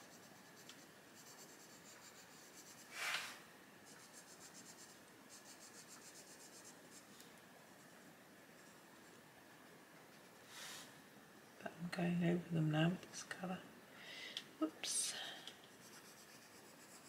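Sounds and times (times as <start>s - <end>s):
pencil shading on paper: 0.0s - 2.9s, 3.8s - 7.0s, 15.7s - 17.0s.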